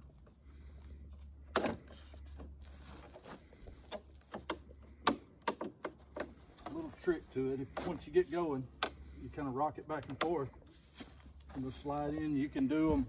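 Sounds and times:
sharp plastic clicks and knocks: 0:03.9 - 0:06.8, 0:09.9 - 0:10.5.

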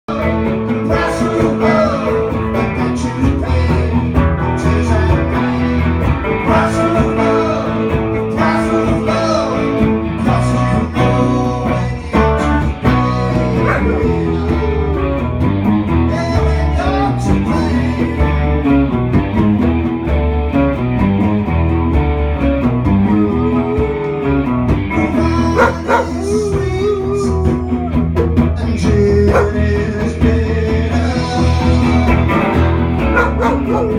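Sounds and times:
electric guitar music: 0:00.1 - 0:33.9
dog howling: 0:13.6 - 0:14.1, 0:25.5 - 0:28.0, 0:29.3 - 0:29.6, 0:33.0 - 0:33.9.

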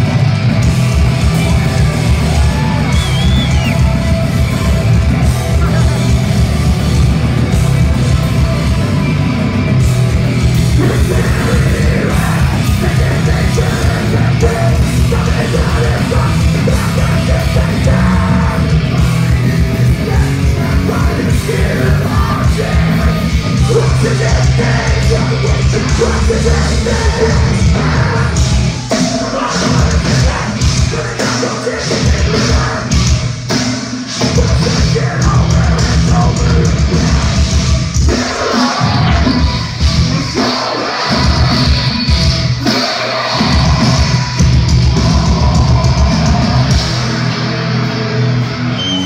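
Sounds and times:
fast hard-hit drums: 0:00.0 - 0:48.2
bass guitar: 0:00.0 - 0:49.0
distorted guitars: 0:00.0 - 0:49.0
screamed vocal: 0:02.1 - 0:04.0.

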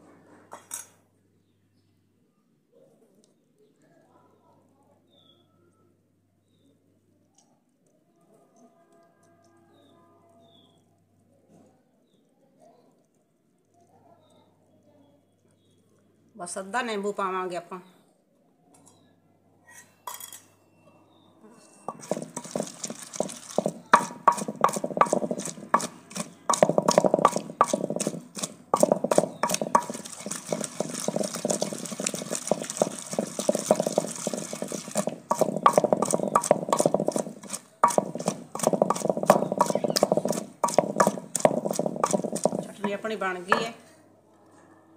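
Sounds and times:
wooden pestle pounding in clay pot: 0:21.9 - 0:43.8.

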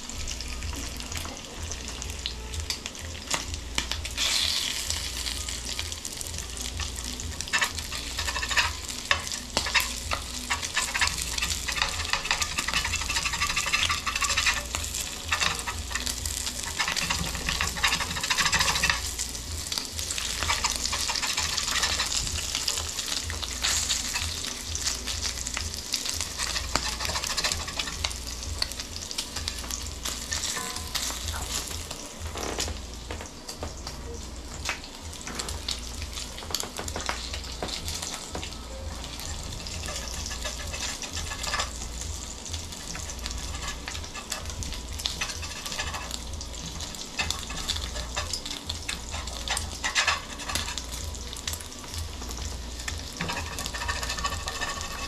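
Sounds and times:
bacon sizzling in a skillet: 0:00.0 - 0:55.0
fat popping and crackling: 0:25.7 - 0:34.0, 0:34.6 - 0:51.3.

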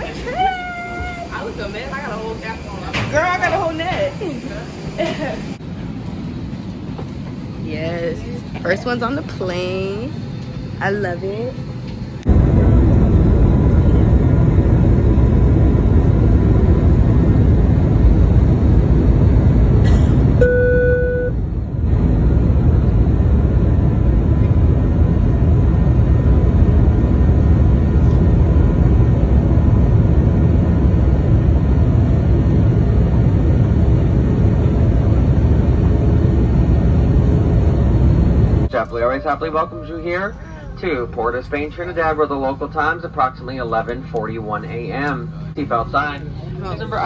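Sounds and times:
jet engine roar in cabin: 0:00.0 - 0:47.0
short tone: 0:20.4 - 0:21.4.

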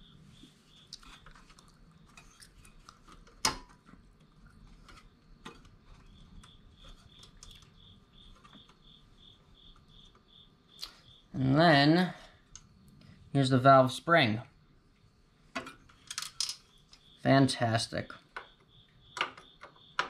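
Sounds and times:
cricket chirping: 0:00.0 - 0:02.8, 0:03.4 - 0:20.0
small metal clicks and clinks: 0:16.0 - 0:16.6.

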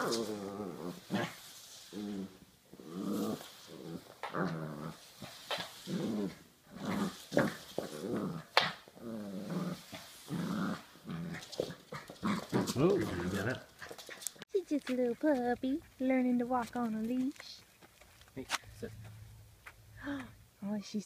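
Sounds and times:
puppy growling: 0:00.0 - 0:14.4.

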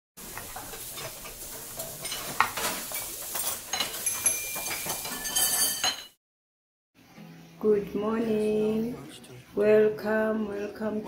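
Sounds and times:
kitchenware clattering: 0:00.2 - 0:06.2.

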